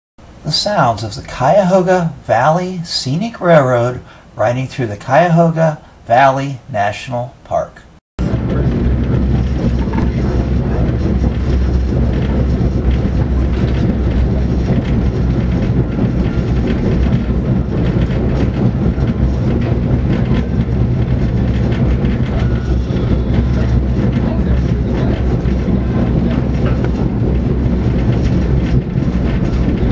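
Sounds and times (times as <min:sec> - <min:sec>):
low drone: 0:08.2 - 0:29.9
train rumbling along rails: 0:08.2 - 0:29.9
wheels clicking on track: 0:08.2 - 0:29.9.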